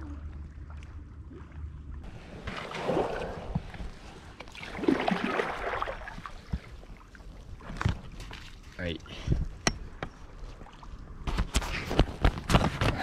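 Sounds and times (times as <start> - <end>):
paddle splashing in water: 1.4 - 8.7.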